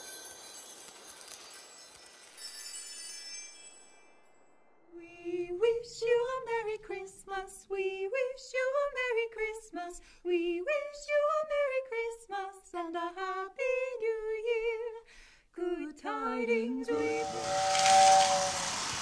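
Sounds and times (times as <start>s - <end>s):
carolers singing a cappella: 5.0s - 15.0s, 15.6s - 19.0s
high bell-like ringing: 16.9s - 19.0s.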